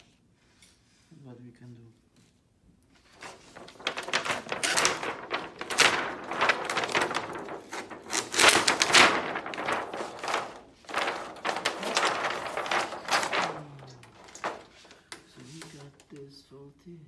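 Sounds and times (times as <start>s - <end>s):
plastic sheet crinkling: 3.0s - 16.4s.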